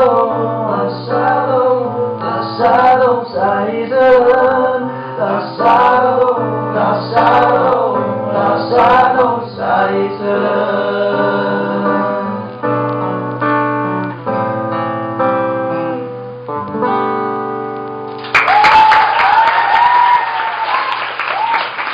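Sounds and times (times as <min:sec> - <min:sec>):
men singing: 0:00.0 - 0:12.5
acoustic guitar chords: 0:00.0 - 0:18.2
audience applause and cheers: 0:18.2 - 0:21.9.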